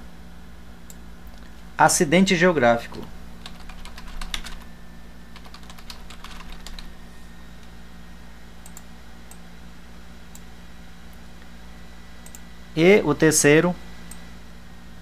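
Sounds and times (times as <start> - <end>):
computer keyboard typing: 2.9 - 4.7, 5.3 - 6.9.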